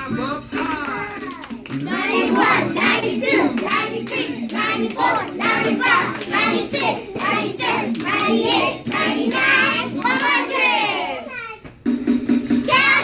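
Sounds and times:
hand claps: 0:00.5 - 0:10.5
children chanting: 0:01.2 - 0:11.4, 0:12.7 - 0:13.0.

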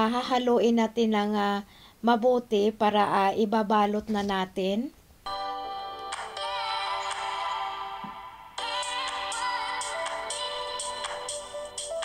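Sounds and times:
bright electronic tune: 0:05.3 - 0:12.0.

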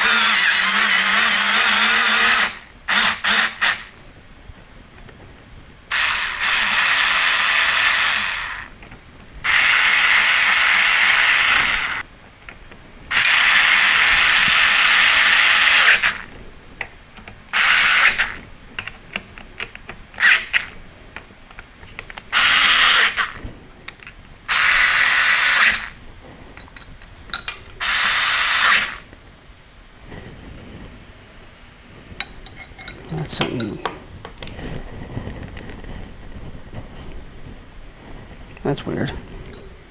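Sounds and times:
electric screwdriver whirring: 0:00.0 - 0:04.0, 0:05.9 - 0:08.7, 0:09.5 - 0:12.0, 0:13.1 - 0:16.3, 0:17.5 - 0:18.4, 0:20.2 - 0:20.8, 0:22.3 - 0:23.4, 0:24.5 - 0:26.0, 0:27.8 - 0:29.1.

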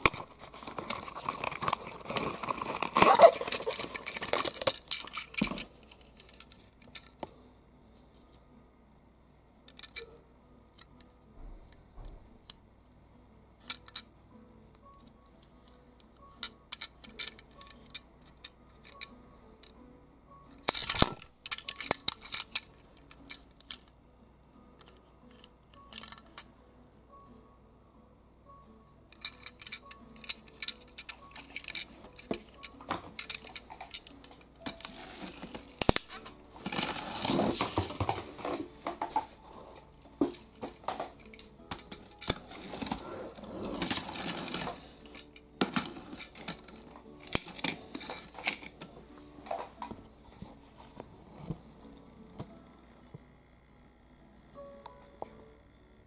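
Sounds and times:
toy car rattling and rubbing: 0:00.0 - 0:07.2, 0:16.4 - 0:19.7, 0:20.6 - 0:23.9, 0:24.9 - 0:26.5, 0:29.1 - 0:39.3, 0:40.2 - 0:48.9
metal toy car clicks and taps: 0:09.7 - 0:10.1, 0:13.6 - 0:14.1, 0:16.4 - 0:19.8, 0:20.6 - 0:23.9, 0:24.8 - 0:26.5, 0:29.1 - 0:36.0.

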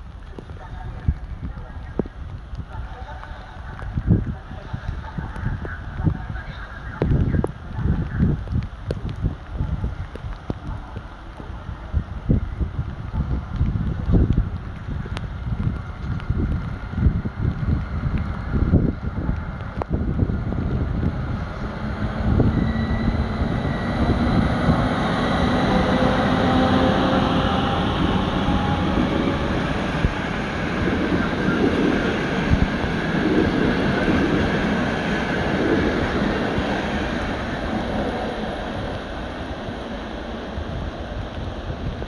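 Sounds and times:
train coaches rolling on rails: 0:17.9 - 0:42.0
diesel locomotives whining: 0:18.3 - 0:42.0.

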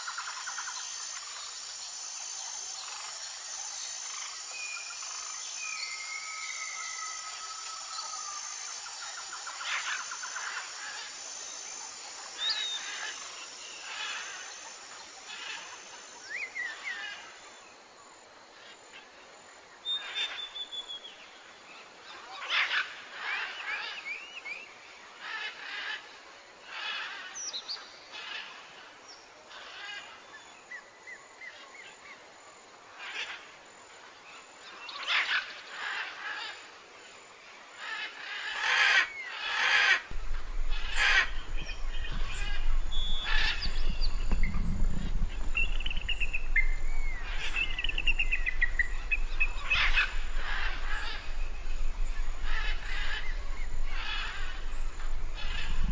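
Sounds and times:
small birds chirping and singing: 0:37.9 - 0:55.9
steady low hum: 0:40.1 - 0:55.9.

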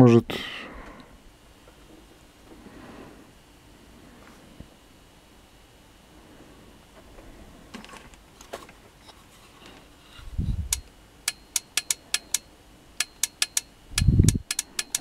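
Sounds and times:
push-to-talk button clicks: 0:13.0 - 0:15.0.

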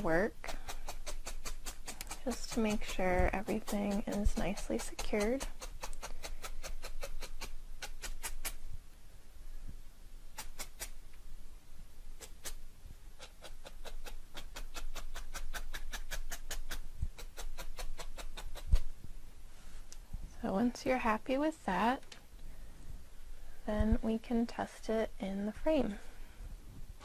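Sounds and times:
felting needle clicking into foam: 0:00.5 - 0:08.6.

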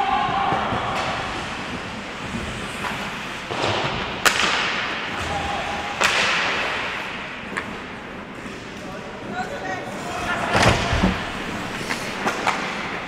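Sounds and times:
skate blades scraping ice: 0:01.2 - 0:04.8, 0:09.9 - 0:13.0
stick hitting puck: 0:02.8 - 0:05.3, 0:06.0 - 0:06.9.

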